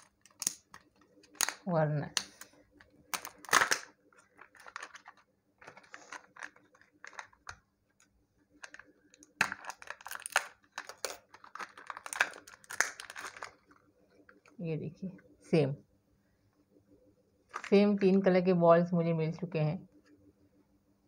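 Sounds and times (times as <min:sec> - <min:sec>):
sharp plastic crack: 0:00.0 - 0:02.5, 0:03.1 - 0:07.6, 0:08.6 - 0:13.7
plastic clicks and creaks: 0:00.0 - 0:14.6.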